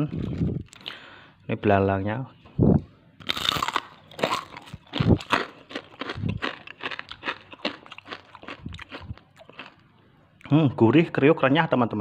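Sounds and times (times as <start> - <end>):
person crunching crisp cracker: 0.0 - 1.0, 3.2 - 9.9.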